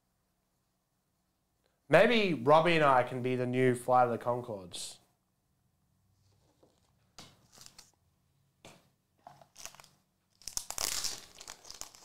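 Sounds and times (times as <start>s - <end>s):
plastic card sleeves rustling: 6.4s - 8.0s, 9.4s - 12.0s
plastic crinkling: 9.2s - 12.0s.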